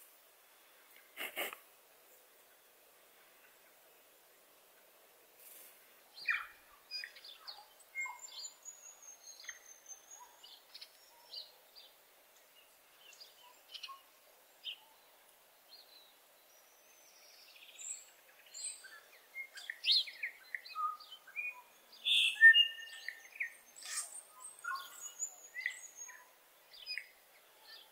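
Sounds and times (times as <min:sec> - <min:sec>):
bird calling chirps: 0:17.6 - 0:27.9.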